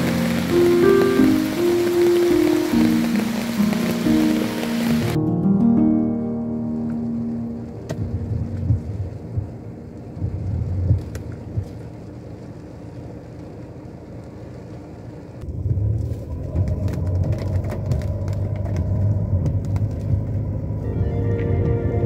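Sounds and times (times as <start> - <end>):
rain tapping on car: 0.0 - 5.2, 7.9 - 15.8, 16.4 - 20.8
tyres rumbling on wet road: 0.0 - 5.2, 7.9 - 22.0.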